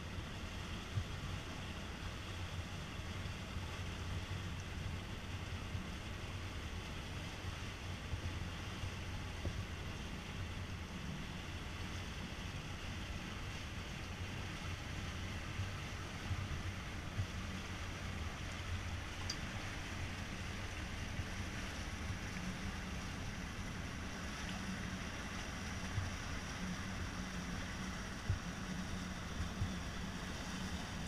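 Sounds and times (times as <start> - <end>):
boat engine running: 0.0 - 31.0
water washing along hull: 0.0 - 31.0
wind on microphone: 20.1 - 31.0.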